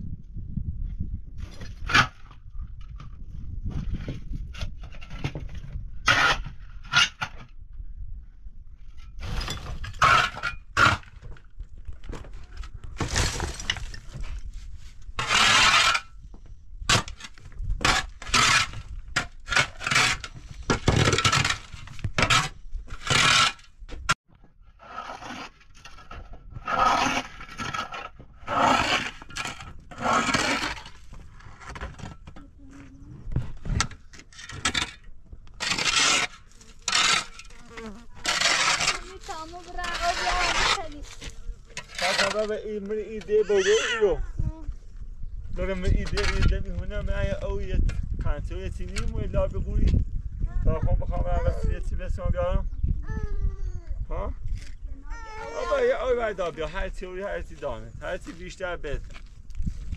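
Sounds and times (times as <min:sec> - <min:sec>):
grit and stones rattling: 0:00.8 - 0:07.7, 0:08.7 - 0:52.9, 0:54.1 - 0:59.9
metal shovel scraping dirt: 0:03.9 - 0:07.5, 0:08.9 - 0:11.3, 0:12.6 - 0:16.2, 0:16.8 - 0:23.8, 0:24.7 - 0:32.2, 0:33.6 - 0:44.1.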